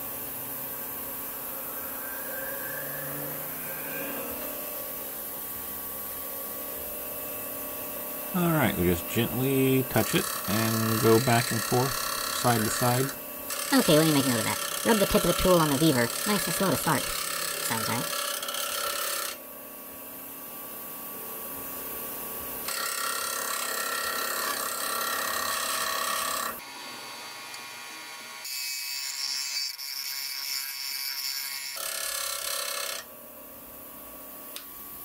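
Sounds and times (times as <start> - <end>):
grinder wheel spinning: 1.2 - 19.4, 22.7 - 26.6
bench grinder grinding metal: 1.3 - 19.4, 22.7 - 26.8, 27.5 - 33.1.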